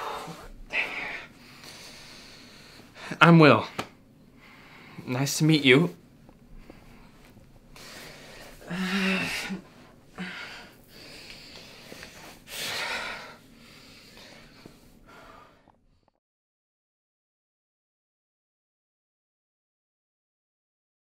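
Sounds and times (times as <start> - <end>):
man breathing heavily: 0.0 - 5.1, 6.5 - 16.2
man groaning: 8.7 - 9.6.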